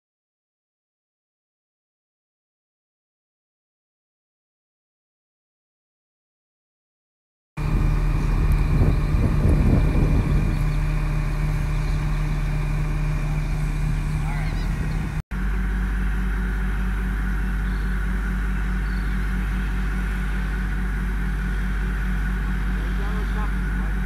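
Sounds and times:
crane engine droning: 7.6s - 24.0s.

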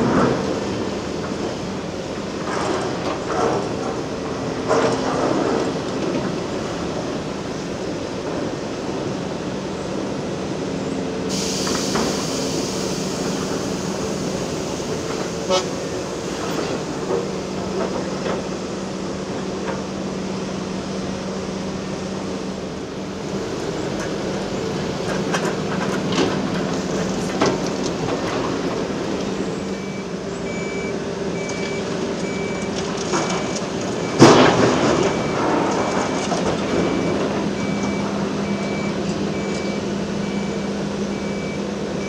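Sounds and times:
excavator engines under load: 0.0s - 42.0s
hiss: 11.3s - 15.5s.

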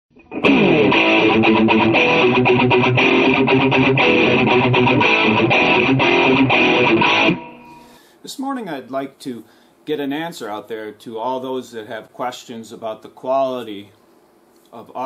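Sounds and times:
strummed guitar chords: 0.1s - 7.9s.

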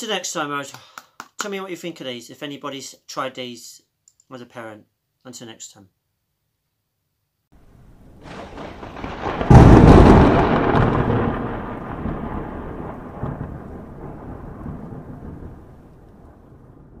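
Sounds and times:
thunderclap-like boom: 8.0s - 17.0s.

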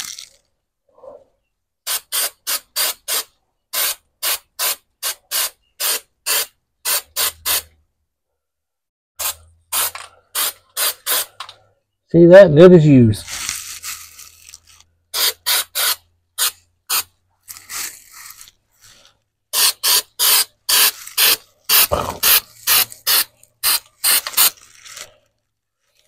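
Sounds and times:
spray gun bursts: 1.9s - 7.6s, 9.2s - 11.3s, 15.2s - 17.1s, 19.5s - 24.5s.

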